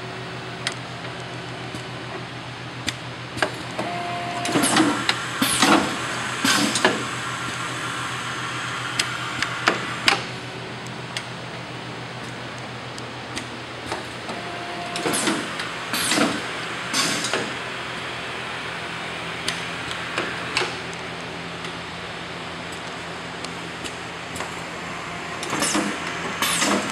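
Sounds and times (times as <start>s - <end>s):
machine hum: 0.0s - 26.9s
machine clicks and knocks: 13.3s - 17.6s, 25.4s - 26.9s.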